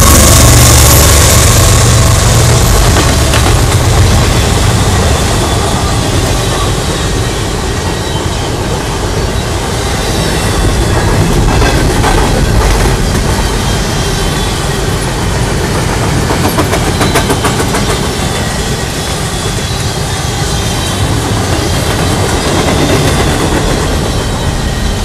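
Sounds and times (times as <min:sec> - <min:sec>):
wheels clicking over rail joints: 0:00.0 - 0:18.8
freight train rolling past: 0:00.0 - 0:25.0.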